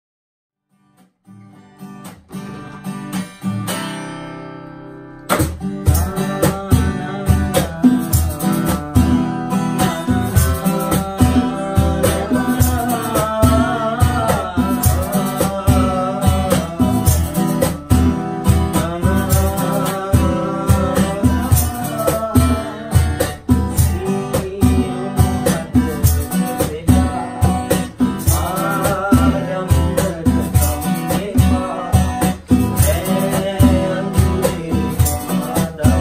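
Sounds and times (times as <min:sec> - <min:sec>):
acoustic guitar picking: 0:00.7 - 0:36.0
strummed acoustic guitars: 0:00.7 - 0:36.0
bongos: 0:05.3 - 0:36.0
men singing: 0:05.9 - 0:08.7, 0:09.8 - 0:36.0
tambourine: 0:32.5 - 0:33.8.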